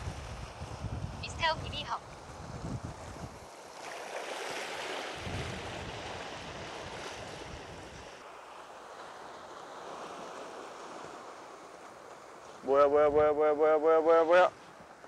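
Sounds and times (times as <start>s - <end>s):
wind buffeting microphone: 0.0s - 3.6s, 5.0s - 8.2s
sea waves on rocky shore: 0.0s - 12.8s.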